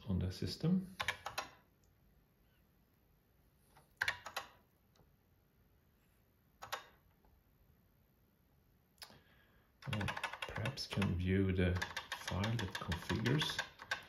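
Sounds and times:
keyboard keystrokes: 1.0 - 1.6, 4.0 - 4.7, 6.6 - 7.0, 9.8 - 14.0.

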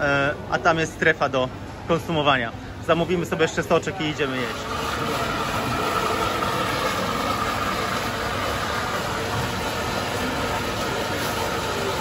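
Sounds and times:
electric blender running: 4.2 - 12.0.

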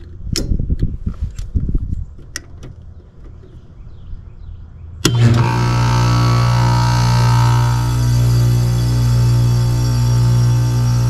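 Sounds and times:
heat pump low drone: 5.0 - 11.0
loud buzzing hum: 5.0 - 11.0.

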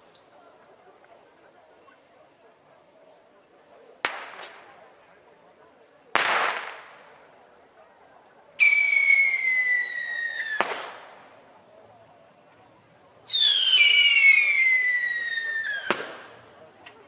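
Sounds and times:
firework bang: 4.0 - 4.8, 6.2 - 7.1, 10.5 - 11.3, 14.7 - 16.4
firework whistle gliding down: 8.6 - 10.6, 13.3 - 16.2.

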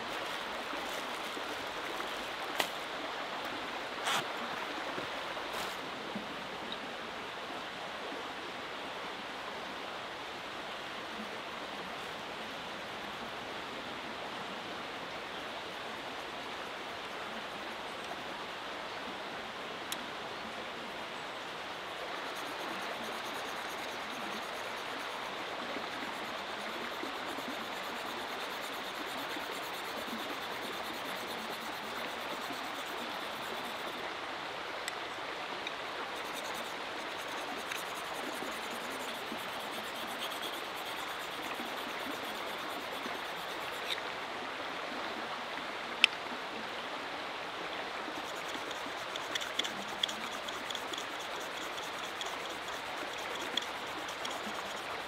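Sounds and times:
small river rushing: 0.0 - 55.0
knife scraping on whetstone: 36.2 - 44.0, 48.2 - 55.0.

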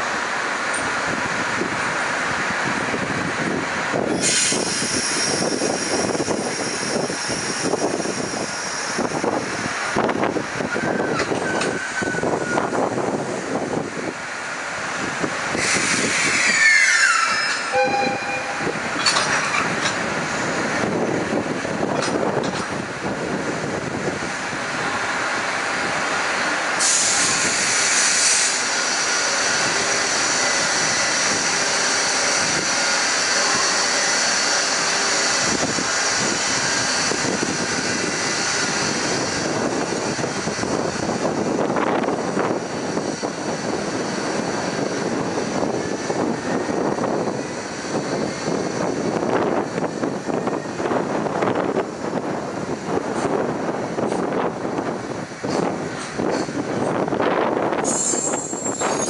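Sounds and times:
high wheel squeal: 10.7 - 12.8, 15.6 - 19.6, 57.8 - 59.0
freight wagons rolling on rails: 15.6 - 24.2, 28.2 - 59.0.

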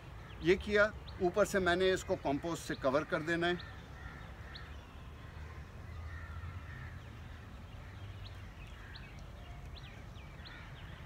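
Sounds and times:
crows cawing: 3.1 - 9.2, 10.4 - 11.0.

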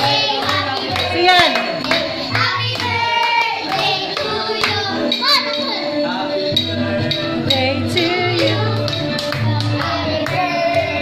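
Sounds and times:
hands clapping: 0.0 - 5.7, 8.3 - 11.0
group singing a birthday tune: 0.0 - 11.0.

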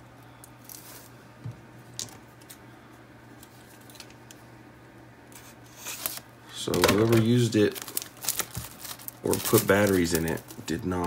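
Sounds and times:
soft plastic rustling: 0.4 - 4.3, 5.4 - 11.0.

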